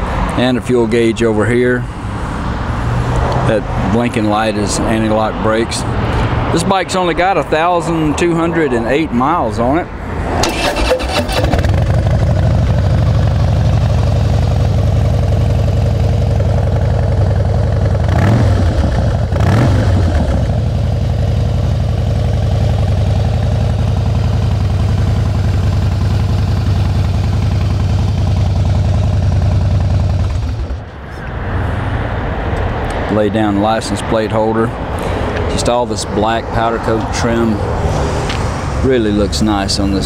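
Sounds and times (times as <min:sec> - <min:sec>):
motorcycle throttle blips: 0:10.4 - 0:31.0
motorcycle engine idling: 0:10.8 - 0:31.0.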